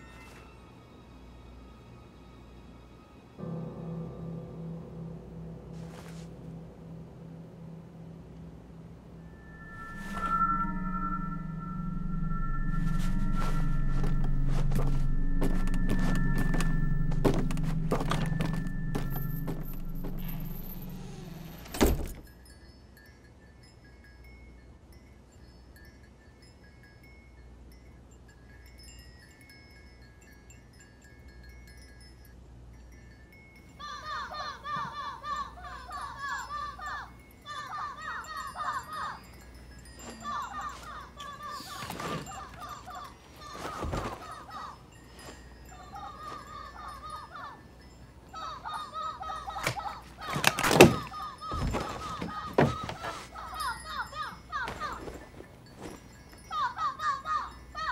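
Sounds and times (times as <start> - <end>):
low steady hum: 2.7 - 22.3
high chiming tones: 3.4 - 57.9.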